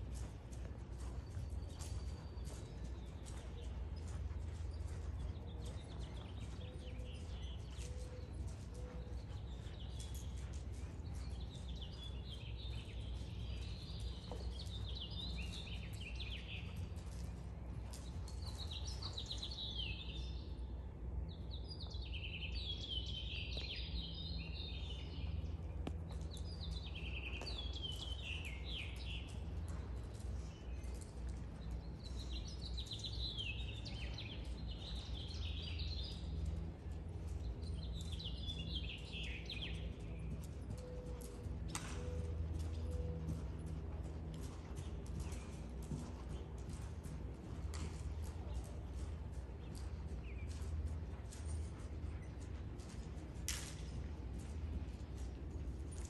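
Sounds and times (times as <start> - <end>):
steady low hum: 0.0 - 56.0
songbird singing: 0.1 - 20.7, 21.3 - 55.2.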